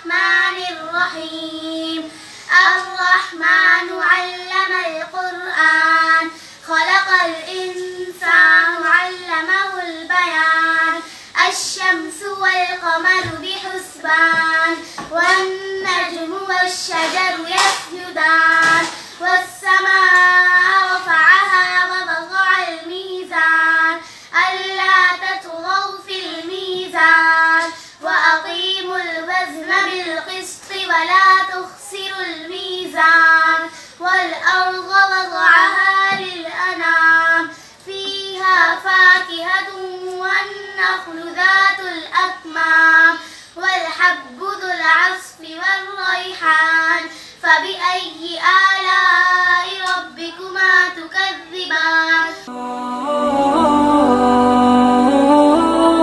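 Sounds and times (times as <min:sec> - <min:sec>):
girls singing unaccompanied: 0:00.0 - 0:56.0.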